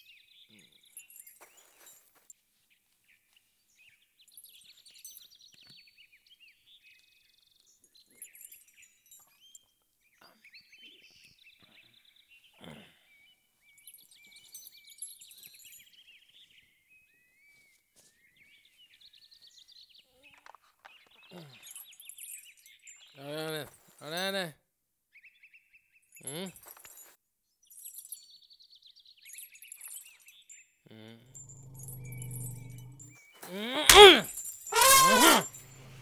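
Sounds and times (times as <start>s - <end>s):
small birds chirping: 0.0s - 1.9s, 3.1s - 16.8s, 27.7s - 33.3s.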